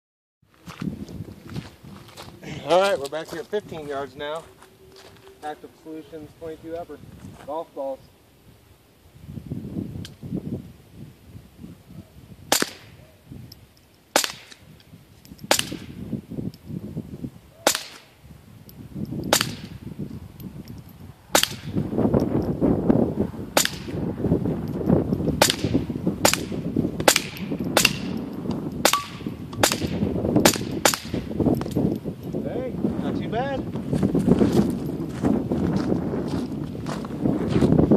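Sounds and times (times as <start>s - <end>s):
rifle shots: 12.5s - 13.0s, 14.1s - 14.6s, 15.5s - 15.9s, 17.6s - 18.1s, 19.3s - 19.8s, 23.6s - 24.0s, 25.4s - 28.2s, 28.8s - 31.3s.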